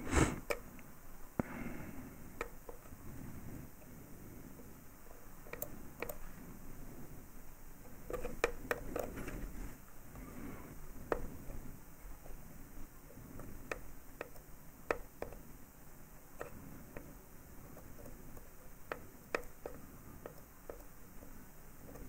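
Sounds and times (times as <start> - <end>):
faint small clicks and taps: 2.3 - 3.0, 4.5 - 6.4, 7.8 - 10.3, 11.0 - 12.4, 13.1 - 15.6, 16.2 - 22.0.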